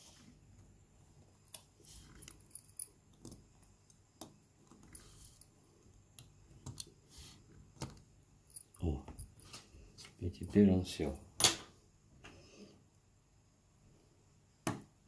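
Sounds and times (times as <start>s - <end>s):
small clicks and taps of tweezers: 6.1s - 6.9s.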